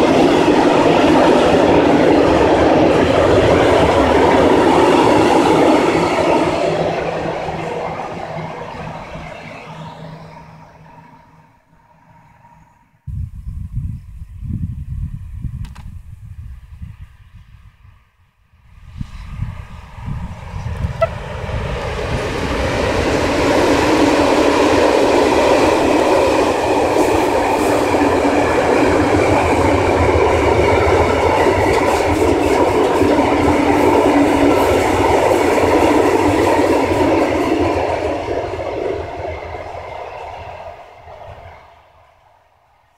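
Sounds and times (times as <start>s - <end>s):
freight train wheels rumbling: 0.0s - 15.5s, 18.8s - 42.8s.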